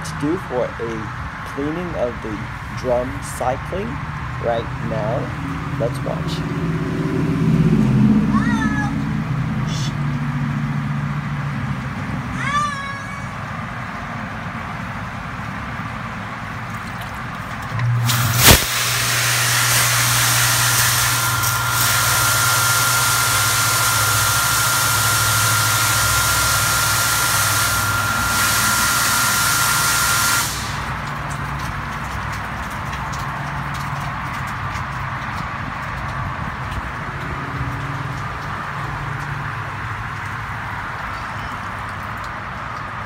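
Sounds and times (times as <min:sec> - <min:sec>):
pump hum: 0:00.0 - 0:43.0
thin steady whine: 0:17.7 - 0:31.7
water spray hissing: 0:17.9 - 0:35.3.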